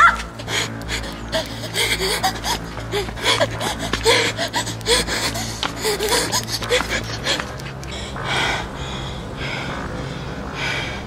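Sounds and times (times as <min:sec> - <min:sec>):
low steady hum: 0:00.0 - 0:11.0
person panting while running: 0:00.0 - 0:11.0.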